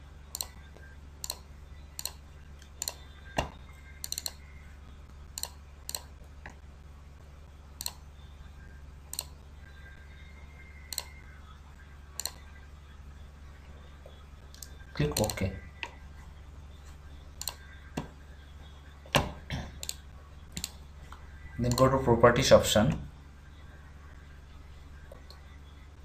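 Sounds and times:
steady low hum: 0.0 - 26.0
computer mouse clicking: 0.3 - 0.6, 1.2 - 3.0, 4.0 - 4.4, 5.4 - 6.6, 7.8 - 8.0, 9.1 - 9.3, 10.9 - 11.2, 12.2 - 12.4, 14.5 - 16.0, 17.4 - 18.1, 19.1 - 20.8, 21.7 - 21.9.

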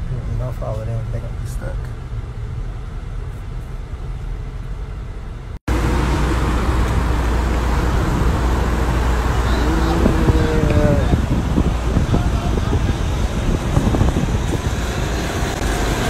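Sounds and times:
highway traffic noise: 0.0 - 16.0
road rumble inside car: 0.0 - 16.0.

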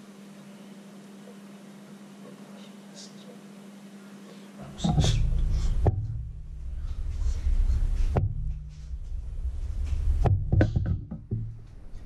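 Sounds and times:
sharp knock: 8.0 - 11.6.

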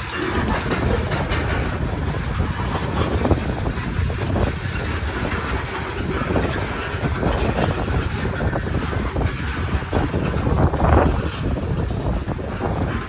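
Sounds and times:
train wheels rumbling on rail: 0.0 - 13.0
wheels clicking over rail joints: 0.0 - 13.0.

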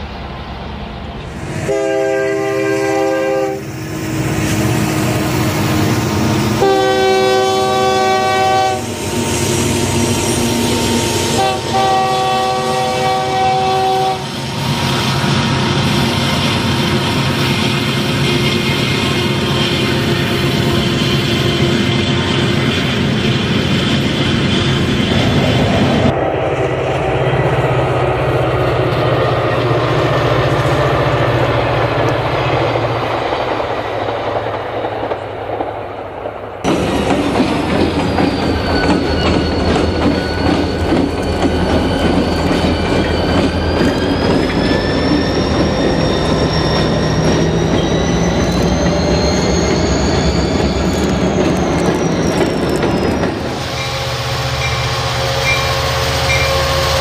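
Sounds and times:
train rumble with low hum: 0.0 - 57.0
train wheels squealing: 8.9 - 33.0, 36.7 - 57.0.

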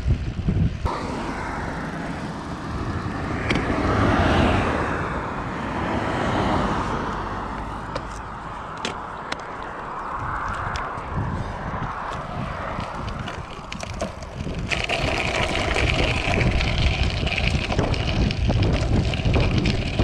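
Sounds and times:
car driving past: 0.9 - 8.5.

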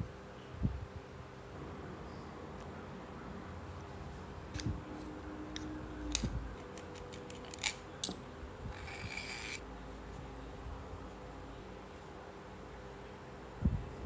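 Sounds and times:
metal parts clicking: 6.1 - 9.6
metal clinks ringing: 7.4 - 9.6.

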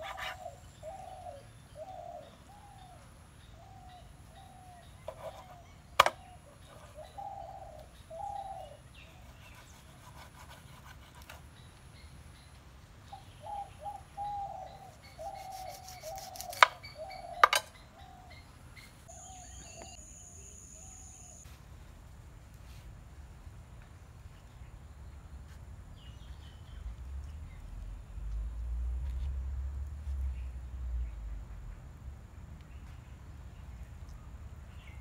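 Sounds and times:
birds cooing and calling: 0.0 - 9.7, 13.1 - 20.0
knife striking cutting board: 15.8 - 16.8, 17.4 - 17.7.

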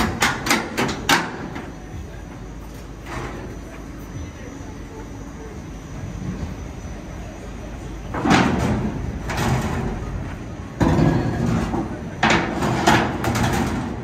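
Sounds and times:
metallic clanks and knocks: 0.0 - 1.7, 10.8 - 14.0.

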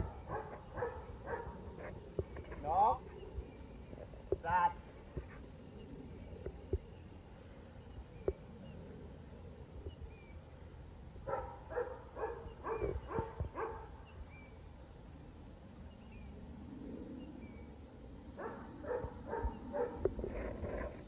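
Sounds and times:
dog barking: 0.0 - 1.6, 11.3 - 13.9, 18.4 - 20.0
high insect buzz: 0.0 - 21.0.

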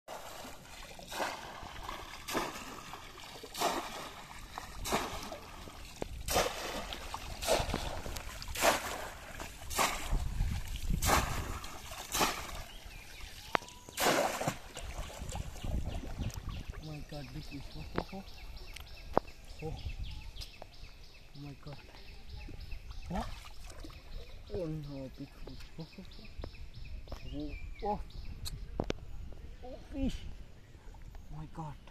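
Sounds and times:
fish trap splashing in water: 0.1 - 15.6.

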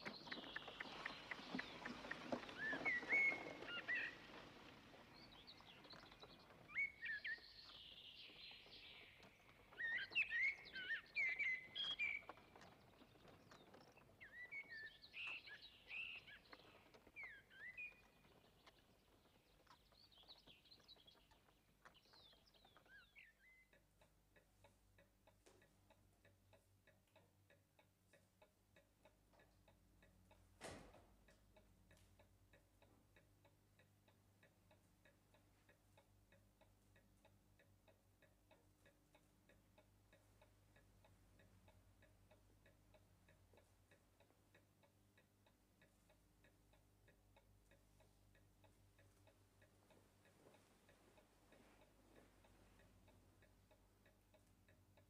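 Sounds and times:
clock ticking: 21.2 - 55.0.

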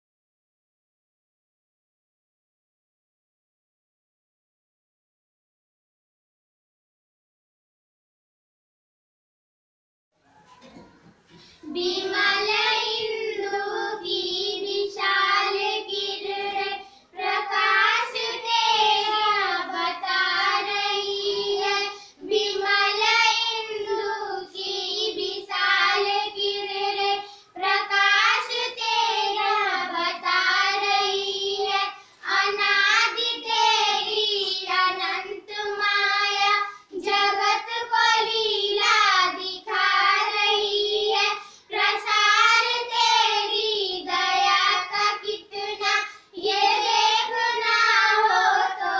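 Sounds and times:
girls singing in unison: 11.3 - 48.9.

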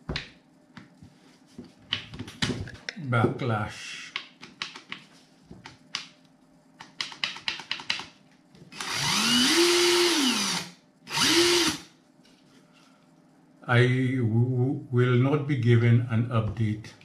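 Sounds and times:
impact wrench motor whirring: 8.7 - 11.9.

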